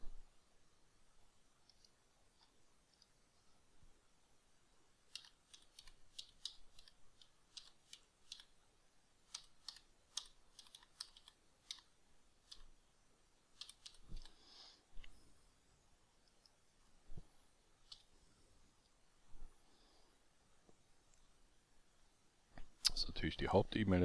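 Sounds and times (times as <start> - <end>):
typing on a computer keyboard: 5.1 - 8.5, 9.3 - 11.9, 13.6 - 14.3.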